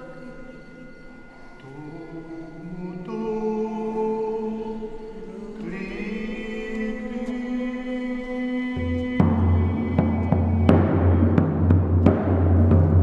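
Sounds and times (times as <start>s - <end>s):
slow chanted singing: 0.0s - 13.0s.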